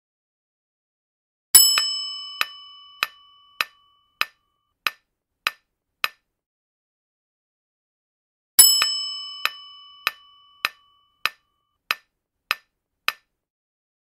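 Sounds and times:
bright bell-like chime: 0:01.6 - 0:04.2, 0:08.6 - 0:11.2.

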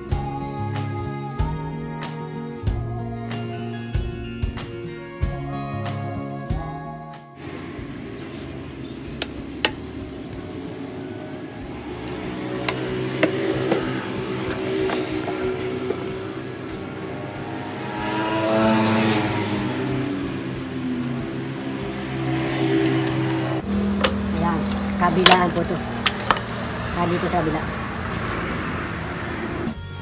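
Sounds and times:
motor engine running: 0:07.4 - 0:29.8.

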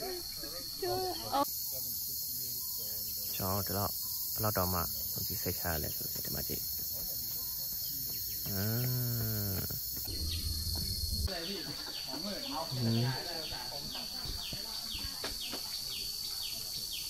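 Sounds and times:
insects buzzing: 0:00.0 - 0:17.0
low voice: 0:08.4 - 0:09.8.

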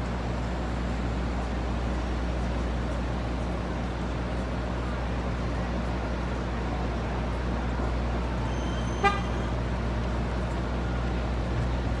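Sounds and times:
city street traffic: 0:00.0 - 0:12.0
car horn toot: 0:08.6 - 0:09.5.

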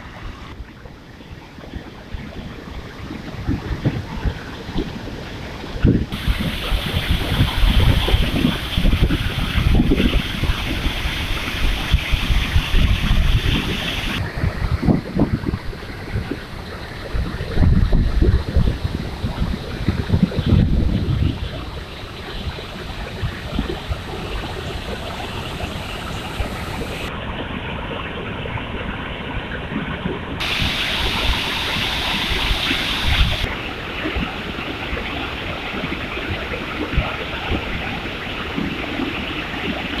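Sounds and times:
water rushing over spillway: 0:00.0 - 0:40.0.

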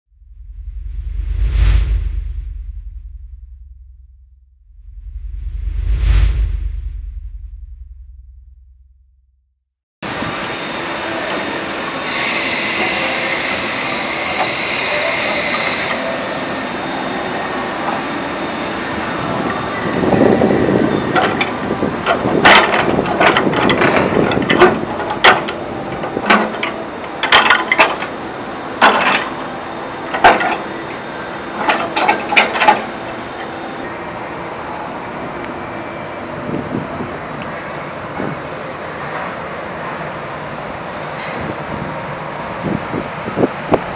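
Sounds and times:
steel cart rolling on pavement: 0:17.9 - 0:33.5.

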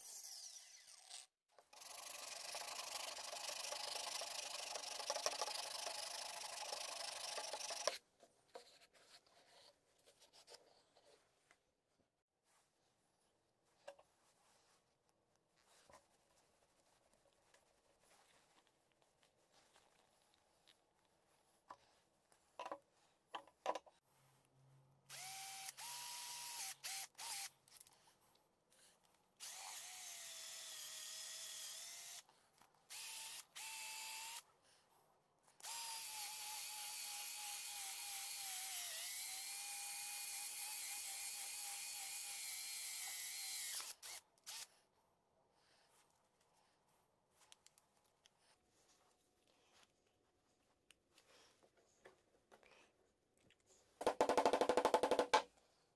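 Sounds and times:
cordless drill whining: 0:25.1 - 0:27.5, 0:29.4 - 0:32.2, 0:32.9 - 0:34.4, 0:35.6 - 0:44.7.

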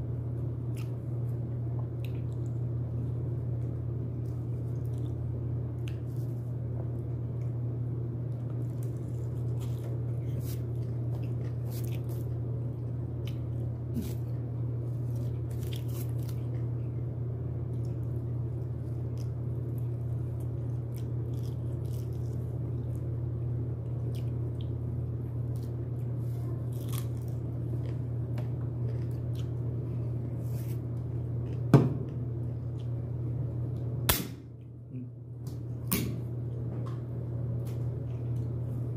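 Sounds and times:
low hum: 0:00.0 - 0:38.9
person chewing: 0:00.6 - 0:01.2, 0:01.8 - 0:03.2, 0:04.1 - 0:06.4, 0:08.4 - 0:16.9, 0:17.7 - 0:23.2, 0:23.8 - 0:31.7.

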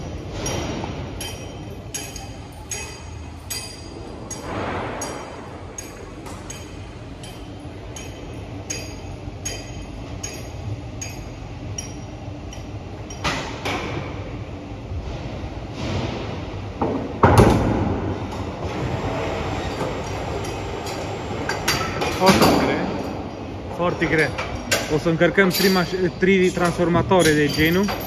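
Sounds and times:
metal clanks: 0:00.0 - 0:14.2, 0:23.9 - 0:28.0.

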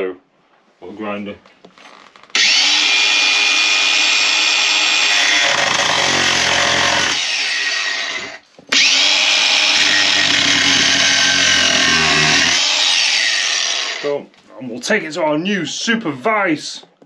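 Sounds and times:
angle grinder grinding steel: 0:02.3 - 0:14.1.

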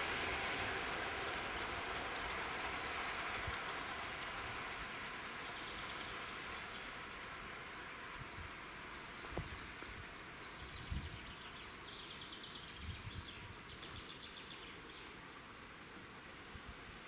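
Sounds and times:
distant steam train: 0:00.0 - 0:17.0
small bird chirping: 0:08.2 - 0:15.2
low thumps on microphone: 0:09.2 - 0:09.6.

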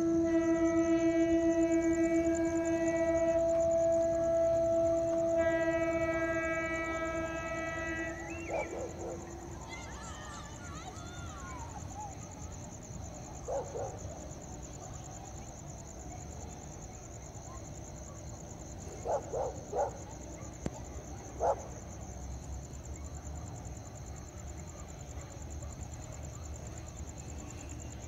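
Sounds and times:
night insects chirring: 0:00.0 - 0:28.0
dog barking: 0:13.5 - 0:14.0, 0:19.0 - 0:20.5, 0:21.4 - 0:21.7.

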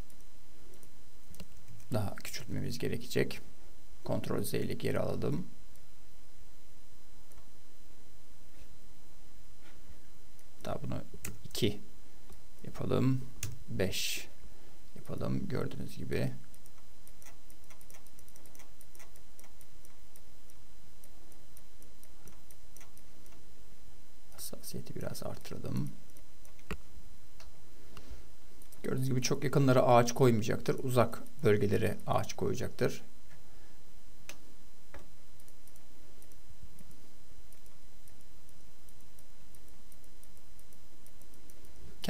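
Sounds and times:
computer mouse clicks: 0:00.0 - 0:01.9, 0:16.5 - 0:23.4, 0:34.2 - 0:41.8
microphone hiss and hum: 0:00.0 - 0:42.0
faint high-pitched ticking: 0:35.0 - 0:41.9.

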